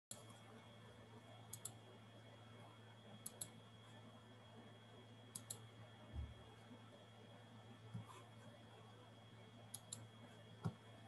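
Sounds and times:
faint low hum: 0.1 - 11.0
computer mouse double-clicks: 1.5 - 1.8, 3.2 - 3.5, 5.3 - 5.6, 9.7 - 10.0.

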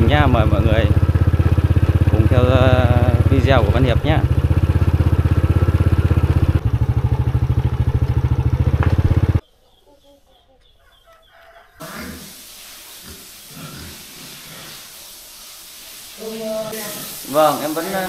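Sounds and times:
motorcycle engine running: 0.0 - 9.4
chickens clucking: 8.0 - 14.9
pigs grunting: 11.8 - 12.4, 13.0 - 14.9.

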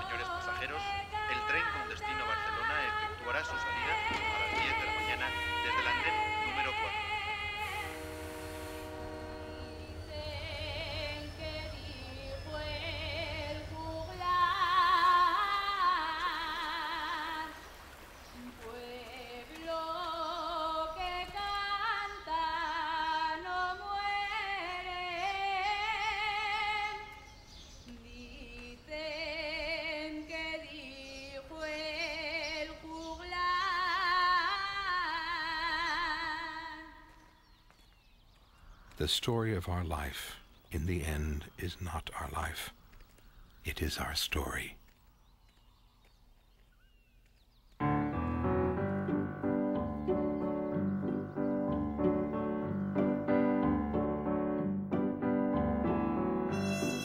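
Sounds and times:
woman singing slow melody: 9.7 - 37.2.

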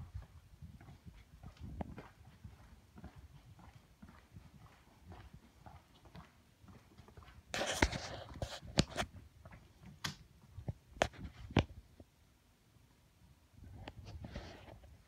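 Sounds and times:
footsteps on wooden floor: 0.2 - 8.4.

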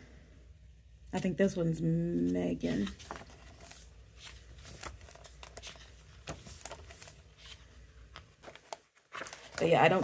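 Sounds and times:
low steady hum: 0.0 - 10.0
pages rustling and turning: 2.1 - 10.0.

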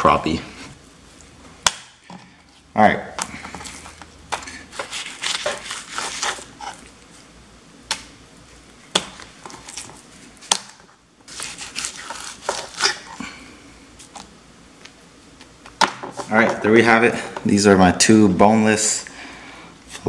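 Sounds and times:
knife scraping fish on wood: 4.7 - 6.9, 11.3 - 13.2.

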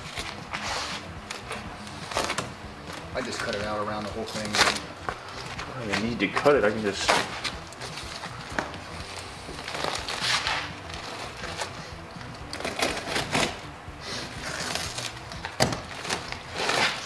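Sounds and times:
sheet metal tearing and crunching: 9.6 - 11.7, 12.5 - 13.6, 14.4 - 17.0.

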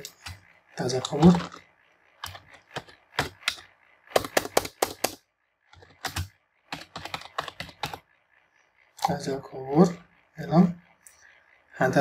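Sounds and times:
computer keyboard typing: 0.0 - 8.1.

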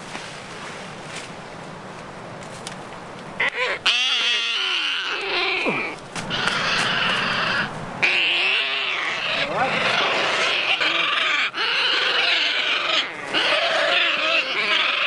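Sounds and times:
bird squawking harshly: 3.4 - 15.0.

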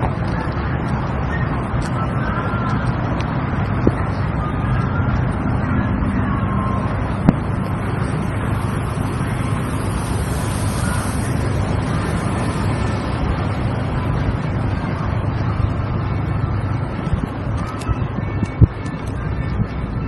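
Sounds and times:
car engine running: 0.0 - 17.7
wind noise on microphone: 0.0 - 20.0.

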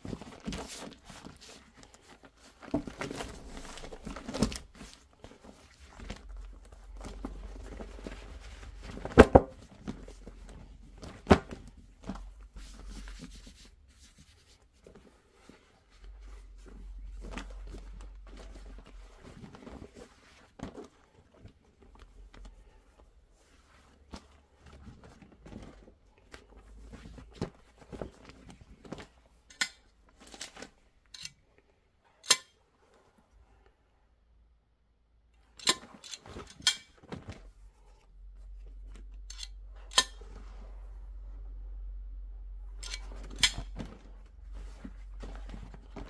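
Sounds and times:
rustling of suede skins: 0.0 - 31.0, 43.0 - 46.0.

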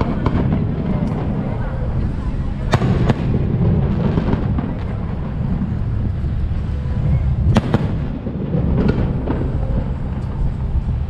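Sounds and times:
firework bangs: 0.0 - 11.0
steady low rumble: 0.0 - 11.0
lighter firework cracks: 7.5 - 10.8.

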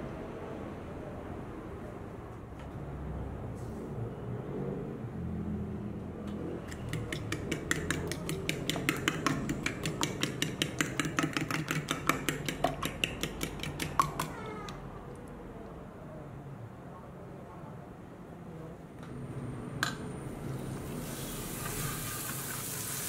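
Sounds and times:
fork whisking egg on a plate: 6.7 - 14.8.

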